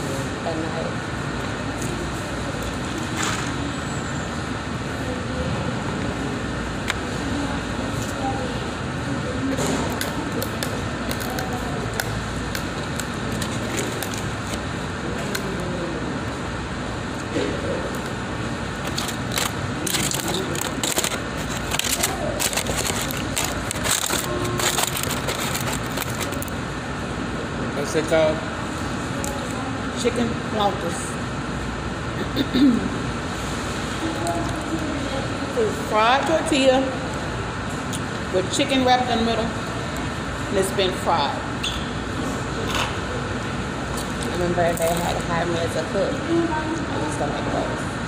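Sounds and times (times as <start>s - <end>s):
air-conditioning hum: 0.0s - 48.0s
ventilation noise: 0.0s - 48.0s
food packaging crinkling: 11.1s - 14.7s, 18.7s - 26.6s.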